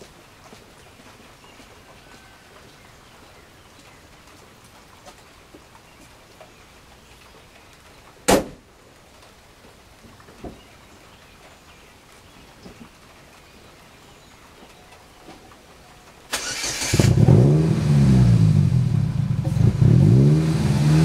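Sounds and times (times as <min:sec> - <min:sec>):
car hood slamming shut: 0:08.3 - 0:08.6.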